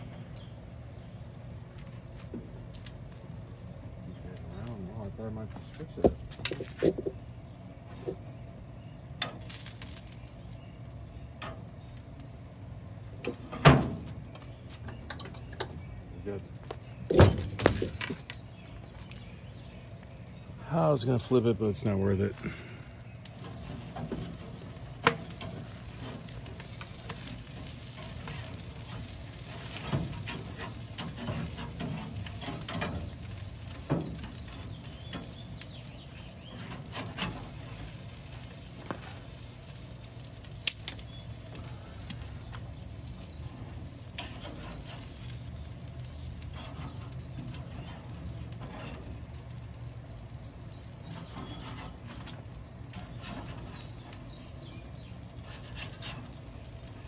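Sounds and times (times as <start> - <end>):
sharp crackles and clicks: 1.6 - 3.3, 7.9 - 19.2, 21.1 - 57.0
meat sizzling: 23.0 - 57.0.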